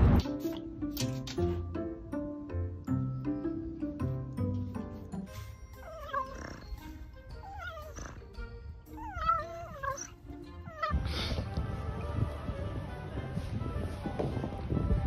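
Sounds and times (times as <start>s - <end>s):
dog whining: 5.4s - 11.4s.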